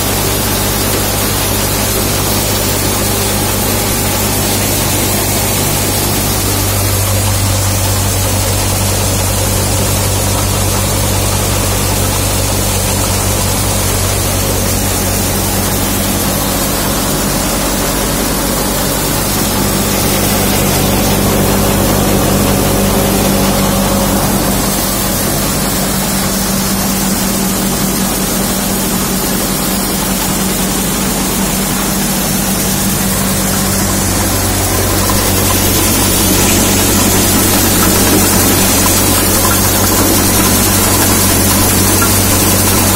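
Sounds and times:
thresher running: 0.0 - 42.9.

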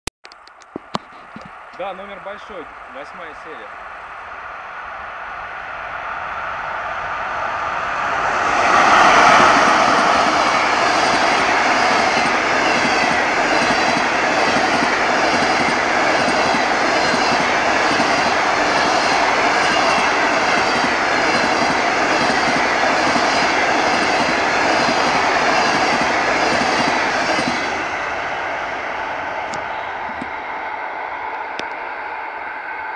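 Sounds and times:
electric locomotive passing: 1.4 - 32.9
train wheels clickety-clack: 8.8 - 28.0.

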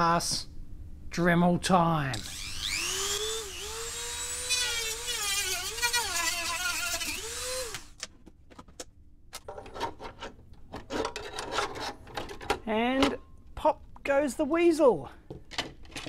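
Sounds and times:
rotary tool whirring: 2.2 - 8.0.

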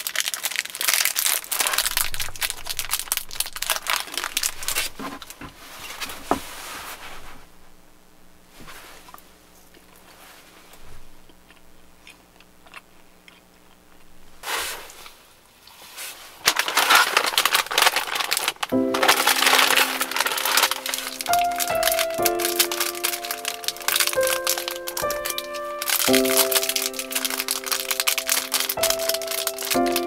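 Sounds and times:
plastic wrapper crinkling: 0.0 - 6.3, 9.1 - 30.0
background music: 18.8 - 30.0.

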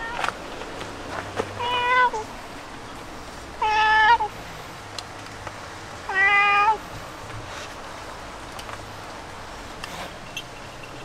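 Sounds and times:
cat meowing: 0.0 - 0.2, 1.6 - 2.3, 3.6 - 4.3, 6.1 - 6.8.

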